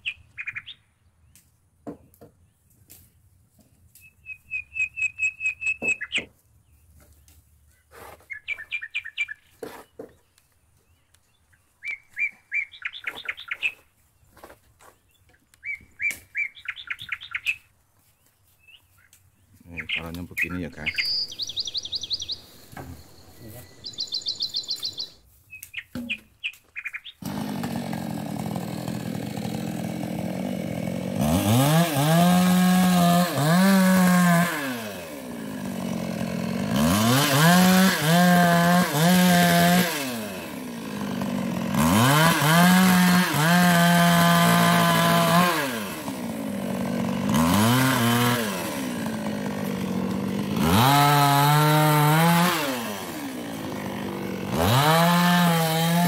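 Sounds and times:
chainsaw idling: 27.2 - 56.0
chainsaw revving: 27.2 - 56.0.

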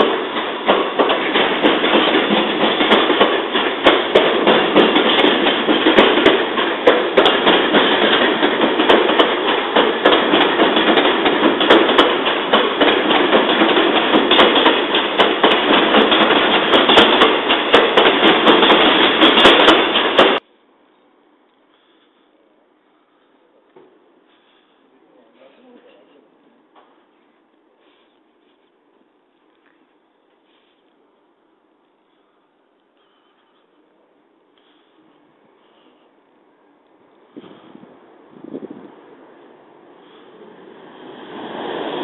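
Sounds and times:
electric train rattling past: 0.0 - 20.4, 36.8 - 42.0.

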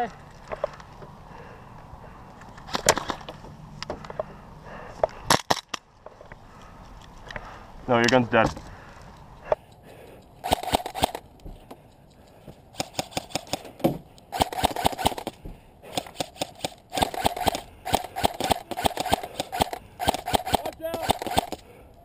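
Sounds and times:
airsoft rifle bursts of clicking shots: 10.4 - 11.4, 12.7 - 21.8.

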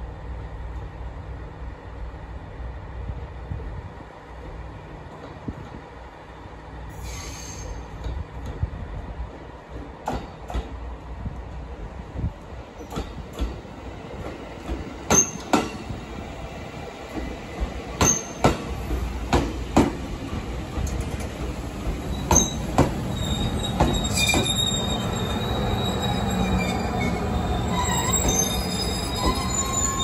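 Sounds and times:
low train rumble: 0.0 - 30.0
high wheel squeal: 7.0 - 7.9, 22.1 - 30.0
train wheels clacking over rail joint: 18.0 - 21.4, 22.2 - 23.0.

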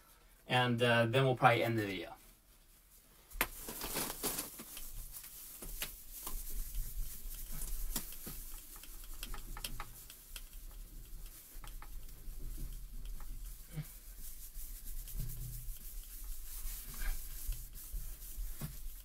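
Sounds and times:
steel wool scrubbing glass: 4.8 - 19.0.

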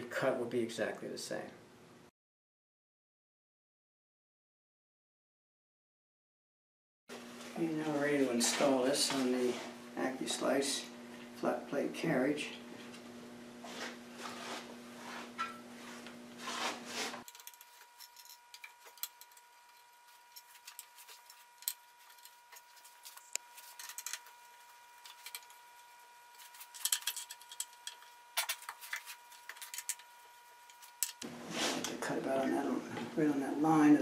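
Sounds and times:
faint steady hum: 7.1 - 34.0.

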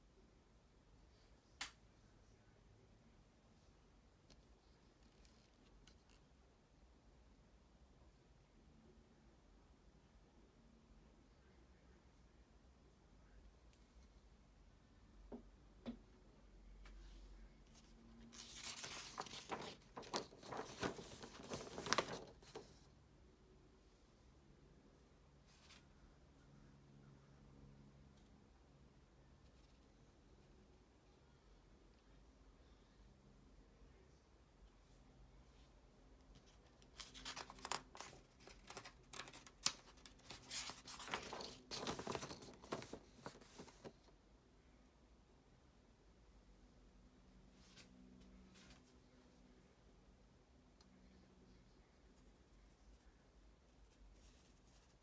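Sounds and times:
paper pages rustling: 17.7 - 22.9, 36.3 - 44.1.

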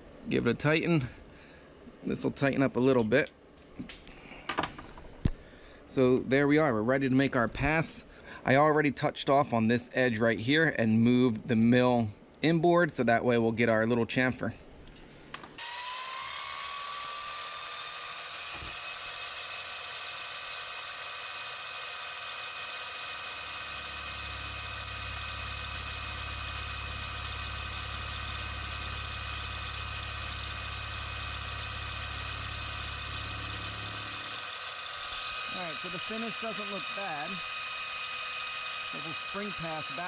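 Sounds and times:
cutter milling metal: 15.6 - 40.0
mill spindle motor whining: 15.6 - 40.0
low hum: 23.4 - 39.6.

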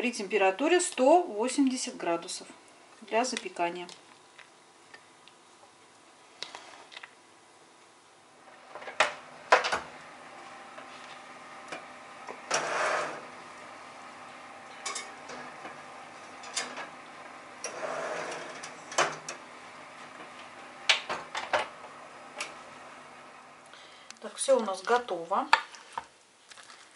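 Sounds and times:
oven door shutting: 8.5 - 13.4, 14.7 - 22.8.

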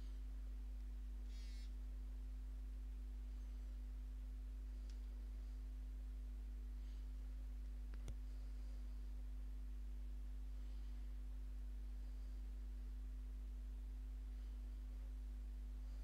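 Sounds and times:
faint steady tone: 0.0 - 16.0
low electrical hum: 0.0 - 16.0
click: 4.8 - 5.2, 7.9 - 8.2.

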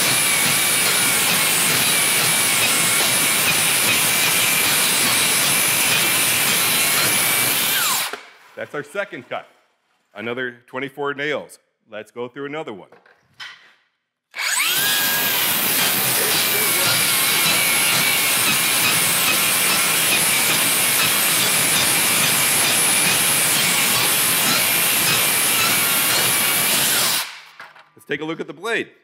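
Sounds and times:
saw spinning up whine: 0.0 - 8.2, 14.4 - 27.4
circular saw cutting nailed board: 0.0 - 8.3, 14.3 - 27.6.

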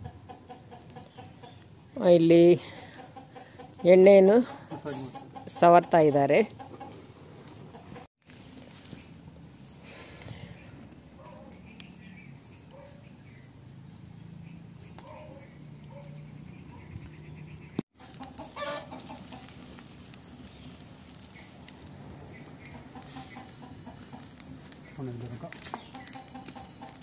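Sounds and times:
chickens clucking: 0.0 - 8.1, 14.9 - 20.4, 21.1 - 27.0.

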